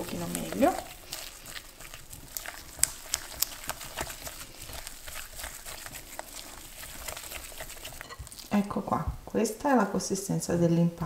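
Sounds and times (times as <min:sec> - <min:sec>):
utensil scraping through dough: 0:00.0 - 0:08.8.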